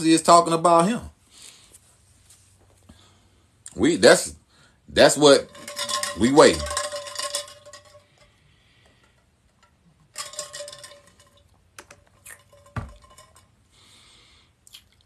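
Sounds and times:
bottle clicks and clinks: 5.5s - 8.2s, 9.1s - 13.5s.

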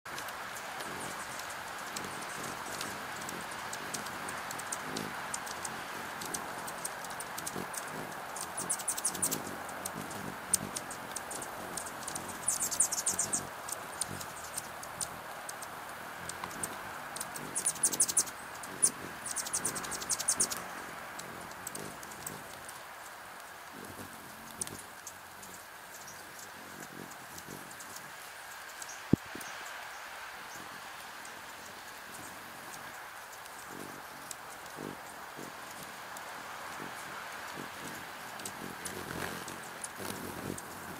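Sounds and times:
hummingbird chatter: 0.1s - 40.9s.

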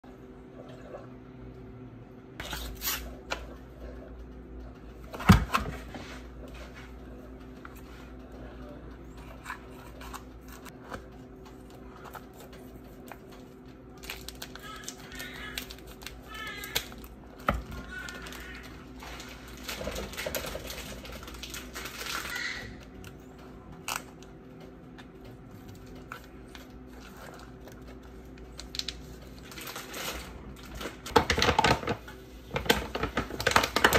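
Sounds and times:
steady low hum: 0.0s - 33.9s
scissors snipping plastic package: 14.0s - 18.7s
plastic package crinkling: 14.0s - 22.6s, 26.2s - 31.9s
kitchen knocks and clatters: 29.7s - 33.9s.

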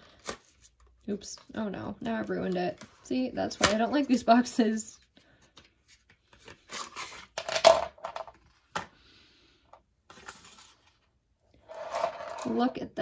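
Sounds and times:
plastic pens clattering on table: 7.4s - 8.9s, 11.7s - 12.7s.

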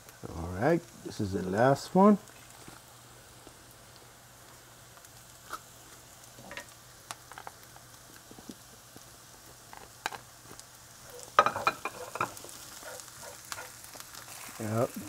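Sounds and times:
onion sizzling in a frying pan: 0.0s - 15.0s
wooden spoon stirring and scraping: 11.0s - 14.9s.

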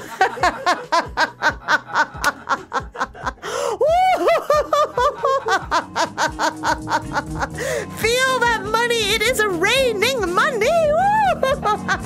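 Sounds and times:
person laughing: 0.0s - 7.8s
rising and falling whoop: 3.8s - 4.7s.

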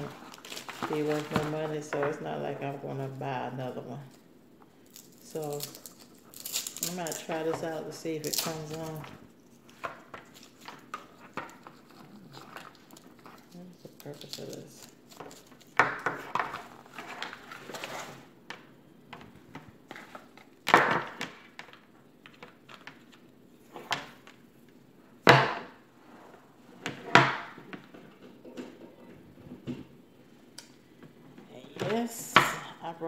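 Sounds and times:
cord rustling and scraping: 8.2s - 18.3s.

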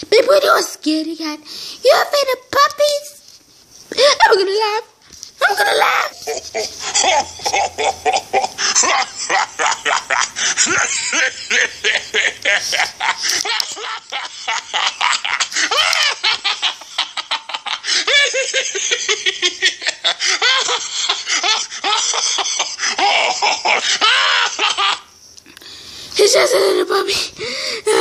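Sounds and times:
child laughing: 3.9s - 4.7s, 5.4s - 25.1s, 26.2s - 27.3s.

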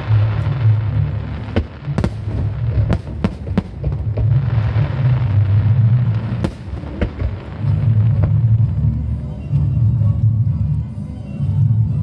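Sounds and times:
fireworks sharp bangs: 0.0s - 8.6s
low rumble of explosions: 0.0s - 12.0s.

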